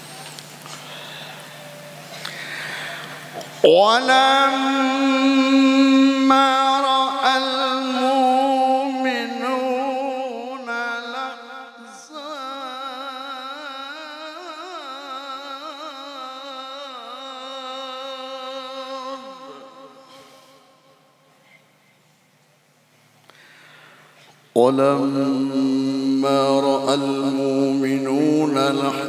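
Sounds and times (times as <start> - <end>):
man reciting melismatic chant: 2.8 - 21.2, 24.5 - 29.0.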